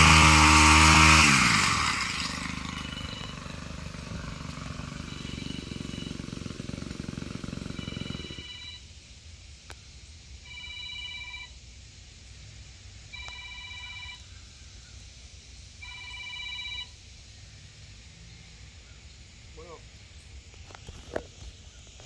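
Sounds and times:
telephone ringing: 2.7s - 3.6s, 5.0s - 6.2s, 7.7s - 8.8s, 10.4s - 11.6s, 13.1s - 14.2s, 15.8s - 16.9s.

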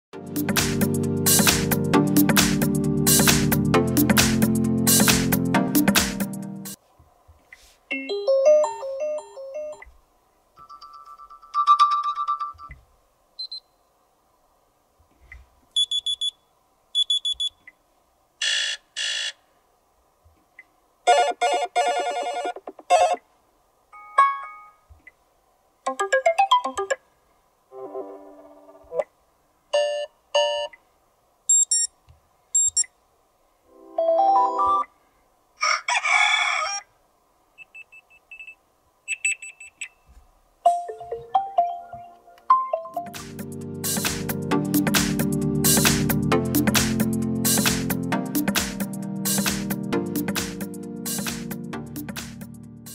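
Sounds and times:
phone alarm tones: 18.4s - 19.4s.

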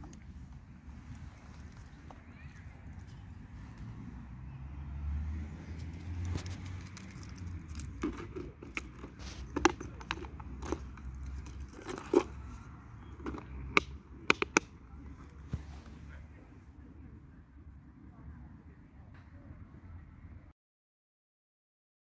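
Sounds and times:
wooden clicks and knocks: 13.2s - 14.7s.

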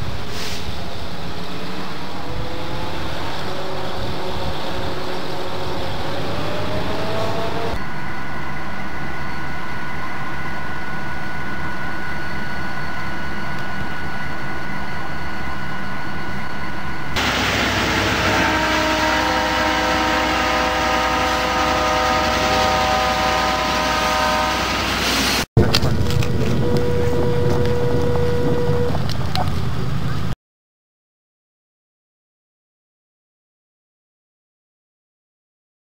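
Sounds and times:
freight train rumbling past: 0.0s - 30.4s
multi-note train horn chord: 17.2s - 24.9s
train horn: 17.2s - 25.1s, 26.6s - 29.0s.

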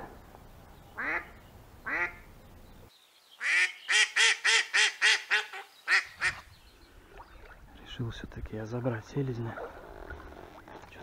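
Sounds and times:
duck quacking: 1.0s - 2.2s.

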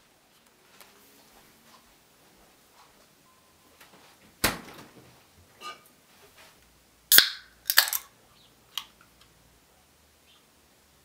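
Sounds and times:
can lid snapping and clicking: 7.1s - 8.1s.

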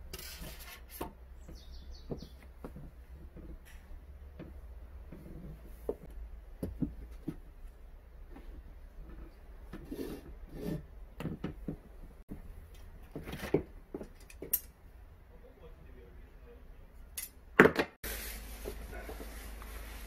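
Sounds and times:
handling knocks and rustles: 0.0s - 10.5s, 11.2s - 14.8s.

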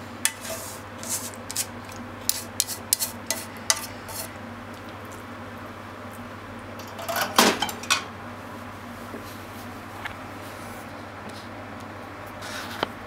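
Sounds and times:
chopsticks scraping metal pan: 0.3s - 1.7s, 2.3s - 4.3s
metal pan clattering down: 6.8s - 8.1s.

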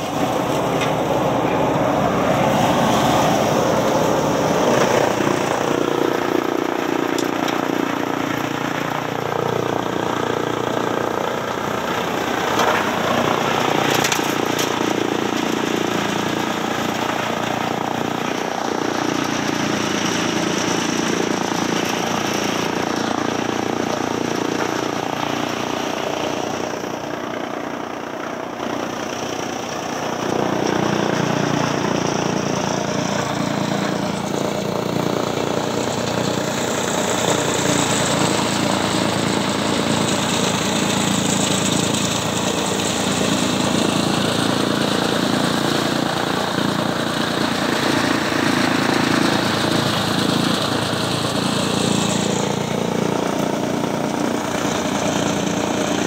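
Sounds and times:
chaff cutter chopping maize: 29.6s - 56.0s.

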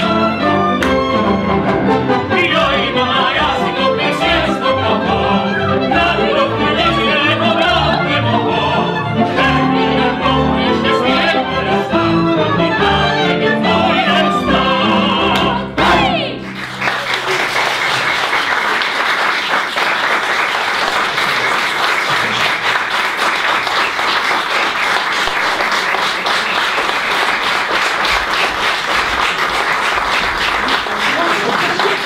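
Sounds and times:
singers with orchestra and piano: 0.0s - 17.4s
audience applause: 16.3s - 32.0s.

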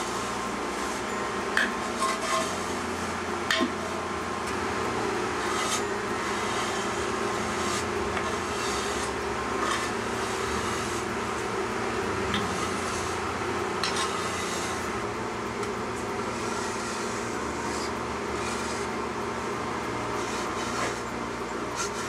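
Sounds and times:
metal bar scraping mortar: 1.6s - 2.6s, 5.4s - 11.1s, 12.3s - 14.9s, 16.3s - 18.9s, 20.2s - 21.1s, 21.8s - 22.0s.

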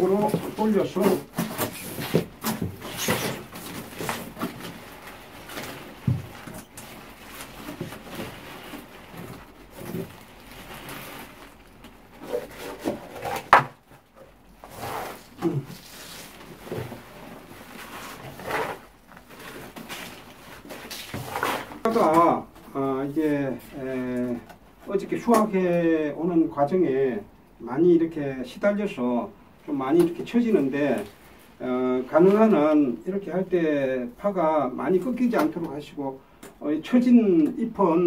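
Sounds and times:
plastic scoop scraping soil: 0.0s - 13.6s, 14.6s - 22.4s
rustling of onion stalks: 0.0s - 26.2s, 29.7s - 36.0s.

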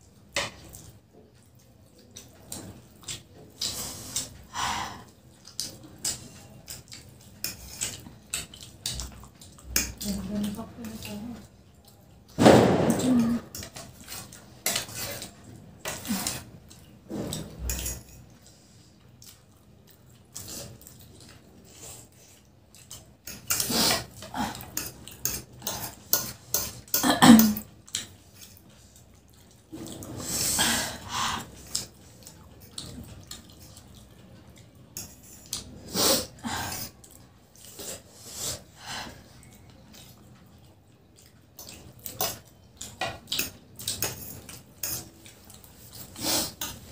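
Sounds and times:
chewing: 0.0s - 46.9s
forks clicking on plates: 22.8s - 28.6s, 41.6s - 45.6s
slurping noodles: 45.8s - 46.9s.

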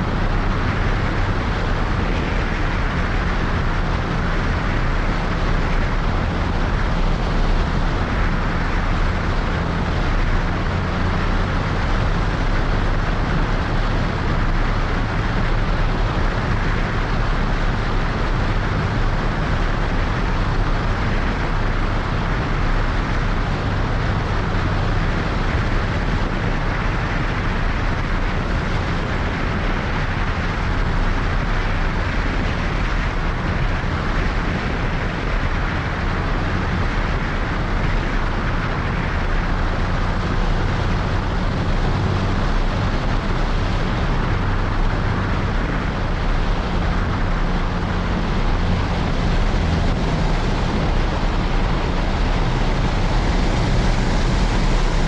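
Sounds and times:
airflow rushing: 0.0s - 55.0s
airplane engine and propeller: 0.0s - 55.0s.

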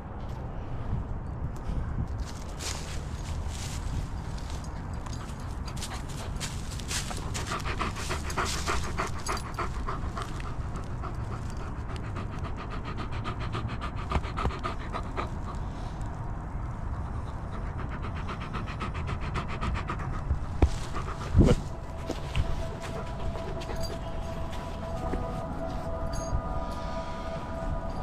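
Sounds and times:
dog panting: 4.6s - 15.9s, 16.8s - 26.3s
wind on microphone: 20.2s - 22.5s.

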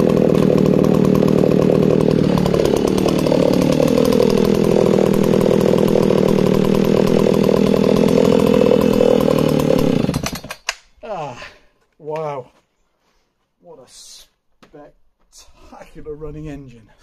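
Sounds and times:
chainsaw running: 0.0s - 10.8s.

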